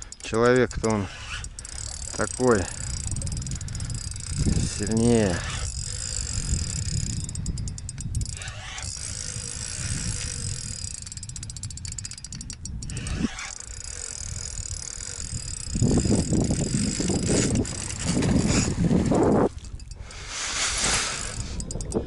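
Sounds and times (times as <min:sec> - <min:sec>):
fishing reel clicking: 0:00.0 - 0:22.0.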